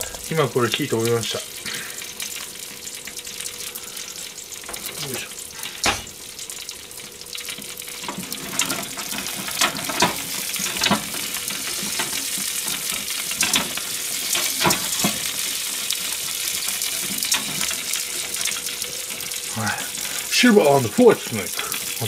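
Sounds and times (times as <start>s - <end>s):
food sizzling: 0.0s - 22.0s
metal grill rack clicks: 5.8s - 6.1s.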